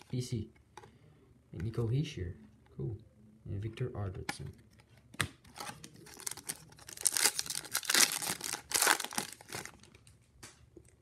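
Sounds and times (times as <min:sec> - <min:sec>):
foil wrapper tearing and crinkling: 0:05.6 - 0:09.9.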